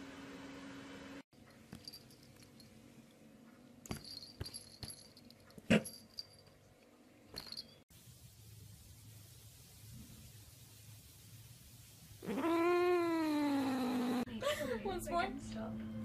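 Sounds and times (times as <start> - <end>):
cat crying: 12.2 - 14.3.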